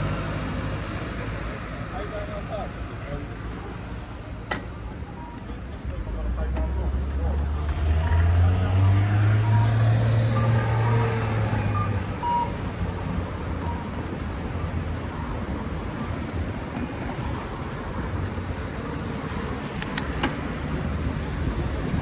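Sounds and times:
traffic noise: 0:00.0 - 0:22.0
vehicle engine humming: 0:00.0 - 0:22.0
sharp clicks: 0:19.8 - 0:20.4.

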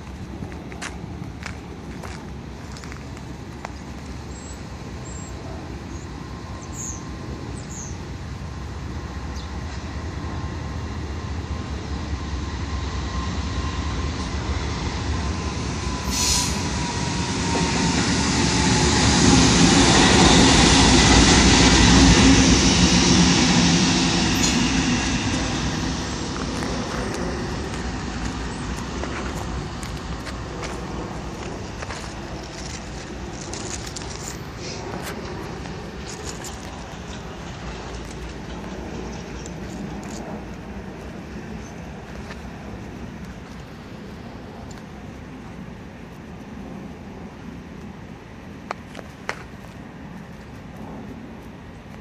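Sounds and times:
diesel locomotives passing: 0:00.0 - 0:52.0
steady whine dropping in pitch: 0:05.9 - 0:44.8.

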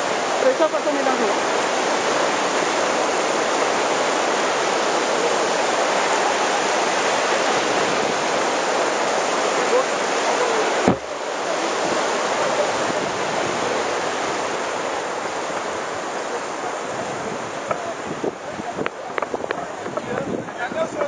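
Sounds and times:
river white water rushing: 0:00.0 - 0:21.0
sharp knock: 0:10.9 - 0:11.1.

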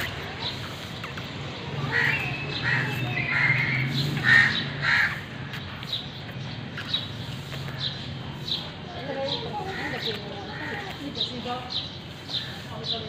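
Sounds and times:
crow cawing: 0:01.8 - 0:05.5.

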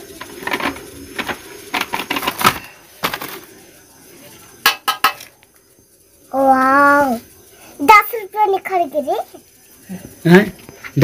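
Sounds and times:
powder tapped onto steel plate: 0:04.6 - 0:05.3.

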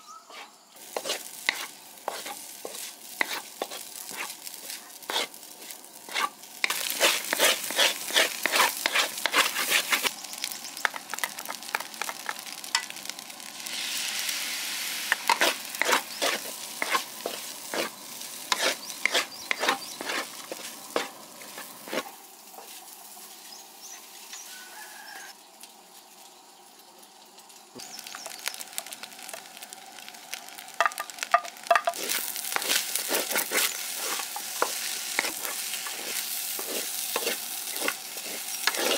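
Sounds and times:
spatula scraping a wok: 0:00.3 - 0:10.1, 0:13.6 - 0:23.4, 0:31.6 - 0:38.9
rice sizzling: 0:00.3 - 0:38.9.

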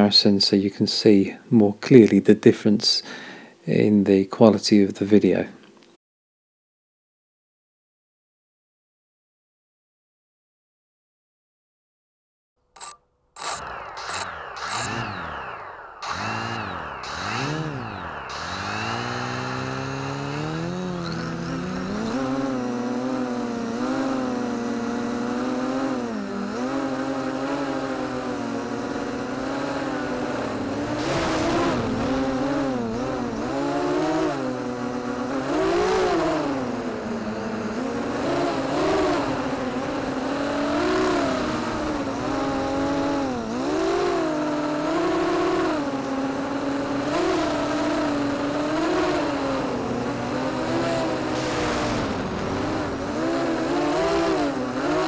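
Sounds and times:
quadcopter motors whining: 0:12.8 - 0:55.0.

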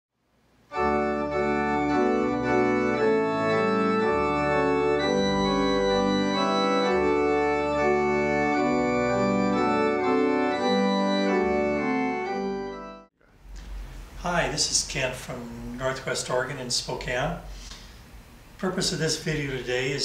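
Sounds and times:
organ music: 0:00.6 - 0:13.1.

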